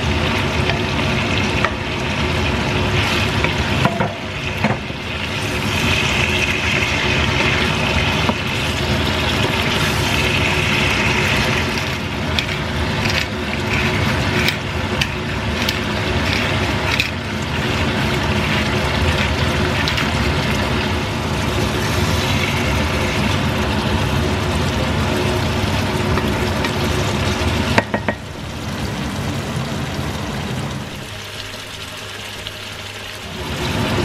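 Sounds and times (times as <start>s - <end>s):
food sizzling in frying pan: 0.0s - 34.0s
spatula knocking against pan: 27.8s - 28.2s.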